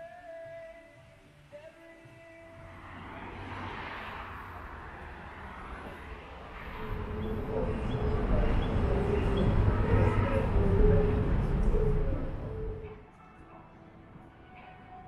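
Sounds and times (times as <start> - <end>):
vehicle rumble: 2.5 - 13.0.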